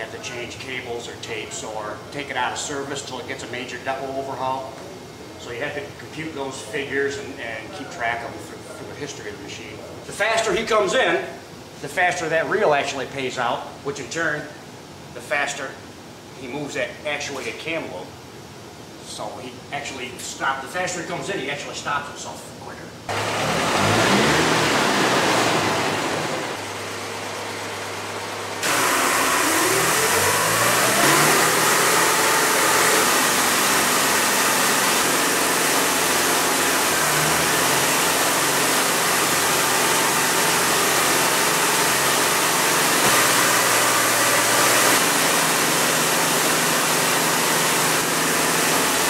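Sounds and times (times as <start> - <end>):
engine running and revving: 23.1 - 28.0, 28.6 - 49.0.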